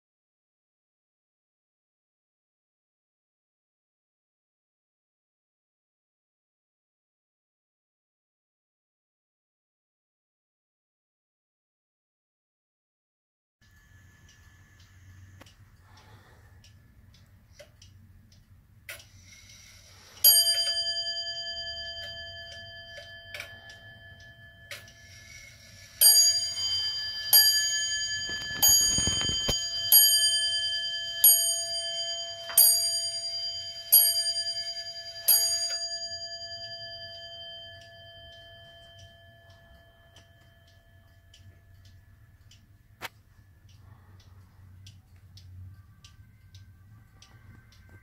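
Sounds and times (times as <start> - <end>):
clock ticking faintly: 13.6 - 48.0
clock striking bell: 19.5 - 41.6.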